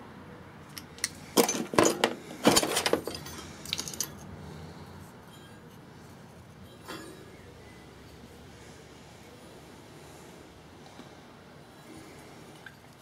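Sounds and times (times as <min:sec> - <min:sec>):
pliers clinking on metal parts: 0:00.7 - 0:04.3.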